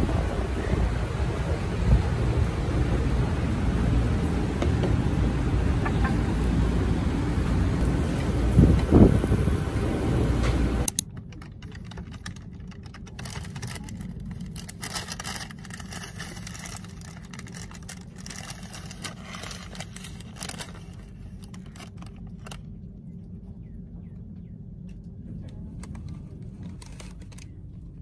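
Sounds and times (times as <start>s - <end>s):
steady low hum: 0.0s - 28.0s
paper bag crinkling: 11.3s - 22.6s, 25.8s - 27.8s.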